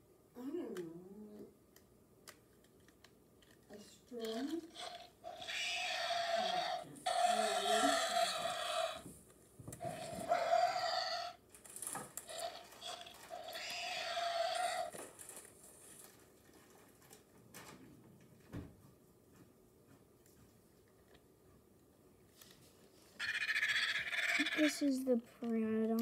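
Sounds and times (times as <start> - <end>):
toy creature calls through speaker: 4.3 - 9.0, 23.2 - 24.8.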